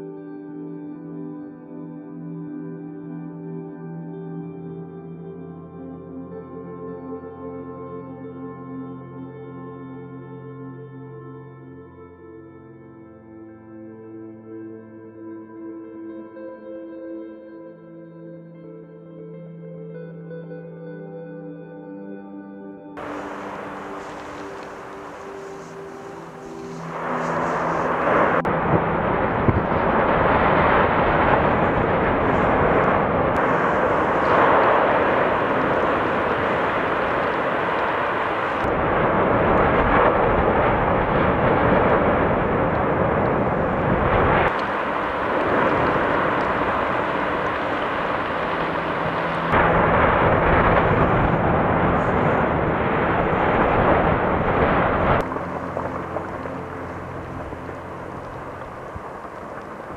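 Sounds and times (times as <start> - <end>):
volcanic eruption rushing: 23.0 - 59.9.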